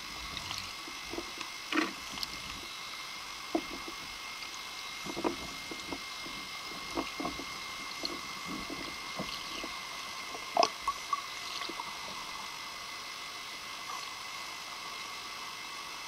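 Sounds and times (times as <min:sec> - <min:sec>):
thin steady tone: 0:00.0 - 0:16.0
underwater hiss: 0:00.0 - 0:16.0
small pops and knocks: 0:03.5 - 0:04.0, 0:05.0 - 0:09.7.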